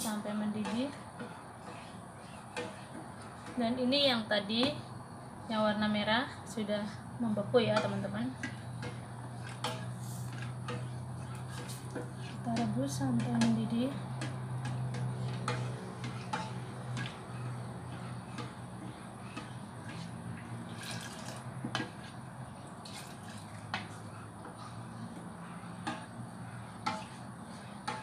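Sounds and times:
ladle stirring liquid in saucepan: 0:00.0 - 0:04.4, 0:07.7 - 0:28.0
liquid pouring into pot: 0:20.7 - 0:21.5, 0:22.8 - 0:23.6.

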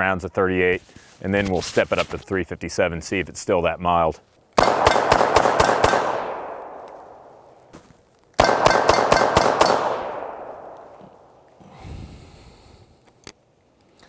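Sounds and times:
rapid gunshots with echo: 0:04.6 - 0:07.3, 0:08.4 - 0:10.8.

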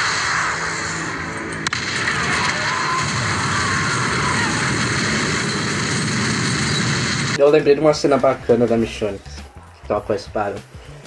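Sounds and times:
rumbling roar of blast and fire: 0:00.0 - 0:07.4
sharp crack: 0:00.0 - 0:07.6.

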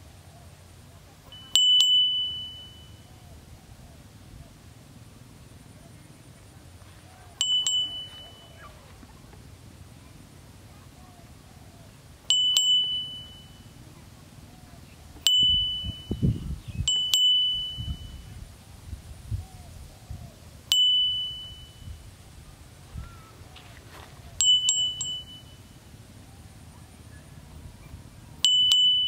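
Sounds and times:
high metallic dings: 0:01.3 - 0:03.1, 0:07.4 - 0:08.8, 0:12.2 - 0:13.9, 0:15.2 - 0:16.3, 0:16.9 - 0:18.3, 0:20.7 - 0:22.0, 0:24.4 - 0:26.0, 0:28.4 - 0:29.0.

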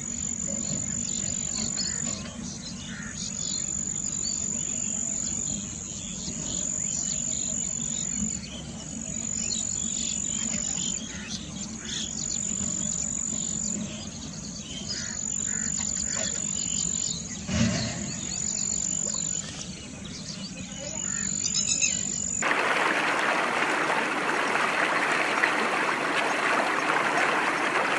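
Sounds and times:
insects trilling: 0:00.0 - 0:19.6.

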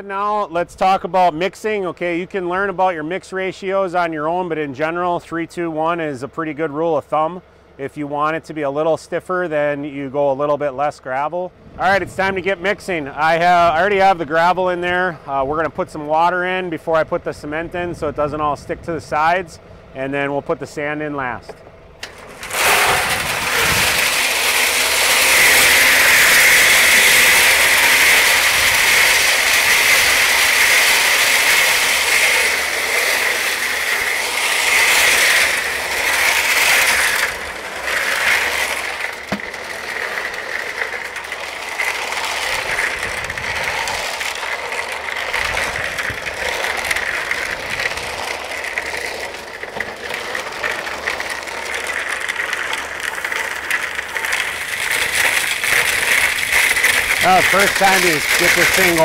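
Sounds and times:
tractor engine running: 0:00.0 - 0:59.0
gravel rattling in mixer drum: 0:11.8 - 0:19.4, 0:20.1 - 0:59.0.

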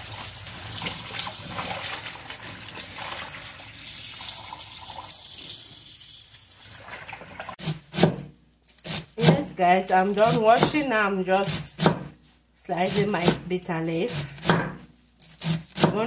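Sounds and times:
water splashing: 0:00.0 - 0:05.2
faucet running into water: 0:00.0 - 0:07.6.

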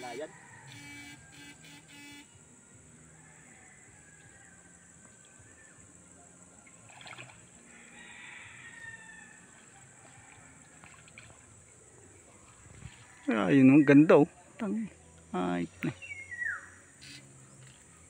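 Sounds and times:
creek water trickling: 0:00.0 - 0:18.0.

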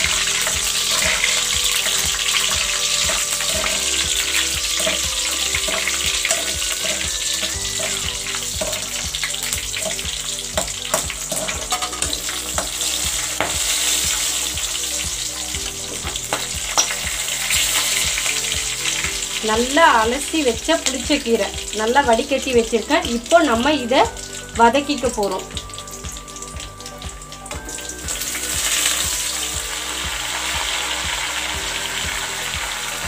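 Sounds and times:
metal spoon scraping pan: 0:00.0 - 0:10.0, 0:10.6 - 0:12.8
oil sizzling with pops: 0:00.0 - 0:33.0.

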